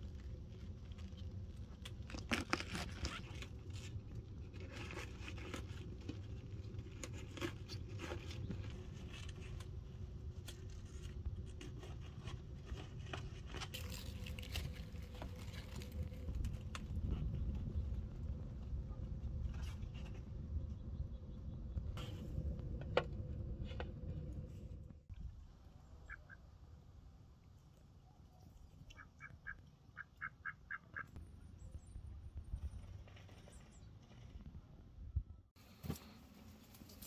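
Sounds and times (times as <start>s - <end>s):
low rumble: 8.2s - 27.2s.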